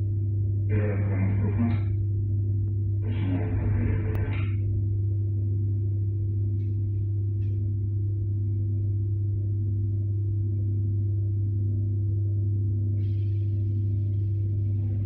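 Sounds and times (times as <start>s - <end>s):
electric train carriage hum: 3.0s - 4.8s.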